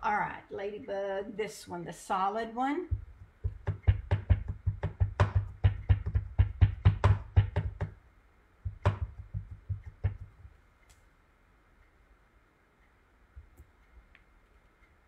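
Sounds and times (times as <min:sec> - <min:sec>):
stamp tapping on ink pad: 0:02.9 - 0:08.0, 0:08.6 - 0:10.5.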